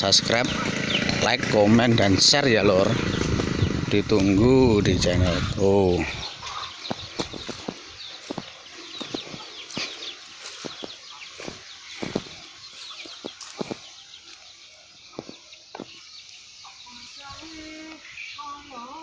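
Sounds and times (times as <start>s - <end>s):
small birds chirping: 0.0s - 19.0s
sharp knocks and crunches: 6.9s - 13.8s.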